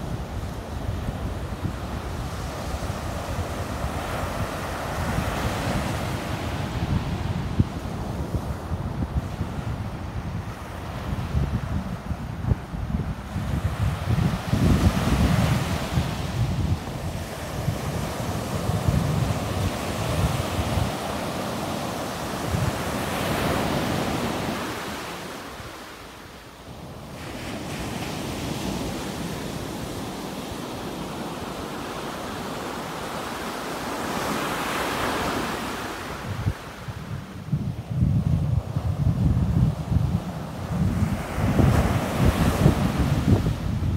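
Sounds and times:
wind buffeting microphone: 0.0 - 25.9, 36.1 - 43.9
ocean surf breaking on beach: 0.0 - 43.9.

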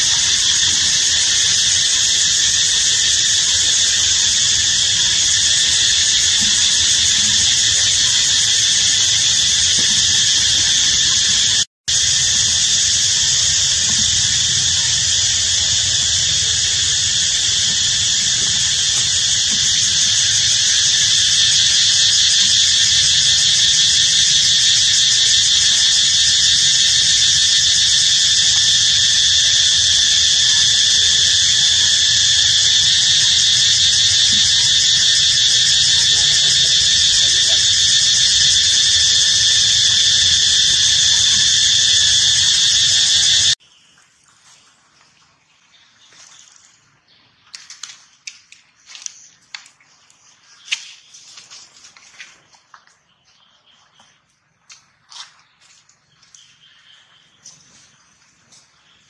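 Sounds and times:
insect chorus buzzing drone: 0.0 - 43.9, 56.0 - 59.0.

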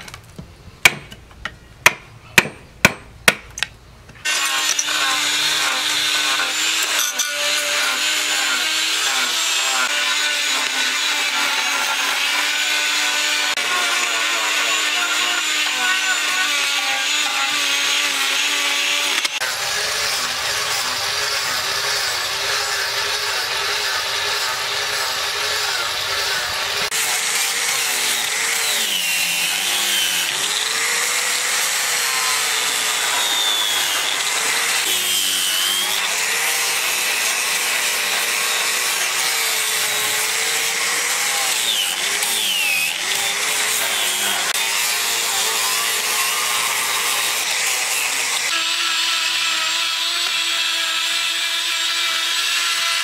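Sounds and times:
angle grinder grinding wood: 4.2 - 53.0
rotary tool cutting wood: 4.2 - 53.0.

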